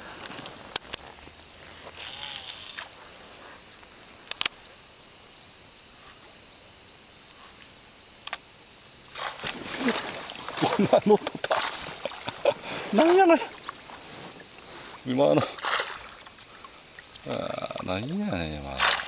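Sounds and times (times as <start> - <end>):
insects chorus: 0.0 - 19.0
sharp clicks: 4.2 - 4.6, 8.2 - 8.4.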